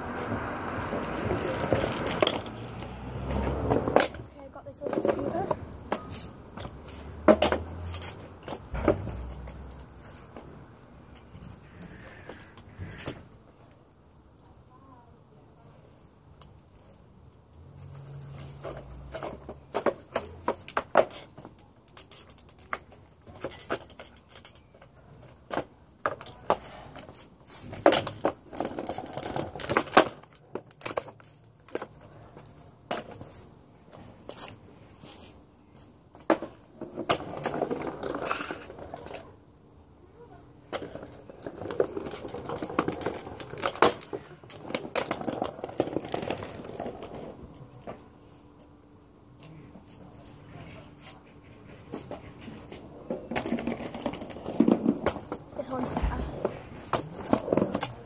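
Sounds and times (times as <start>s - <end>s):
scooter wheels rattling on paving: 0.0s - 15.0s, 18.2s - 39.6s, 40.2s - 48.0s, 51.0s - 58.0s
scooter deck clacking on ground: 0.7s - 13.3s, 18.6s - 33.5s, 40.6s - 48.0s, 51.6s - 58.0s.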